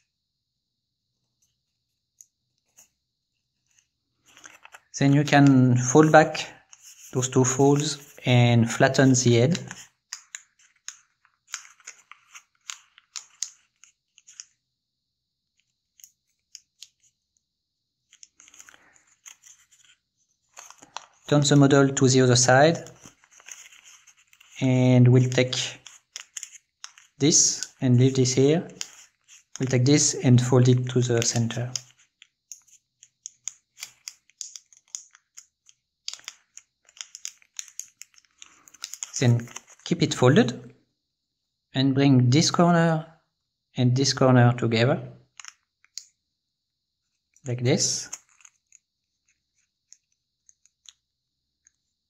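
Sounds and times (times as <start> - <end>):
paper crinkling and rustling: 3.6 - 14.6, 18.1 - 39.9, 47.8 - 49.7.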